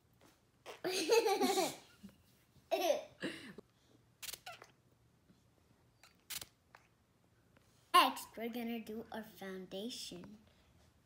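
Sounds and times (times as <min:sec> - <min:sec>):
children giggling: 0:00.7 - 0:02.1
sharp clicks: 0:04.2 - 0:04.7, 0:06.0 - 0:06.9.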